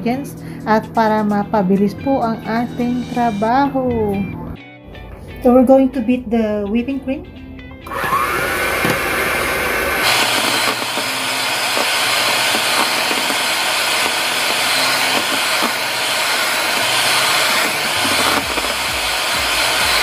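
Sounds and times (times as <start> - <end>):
electric hand mixer whirring: 7.8 - 20.0.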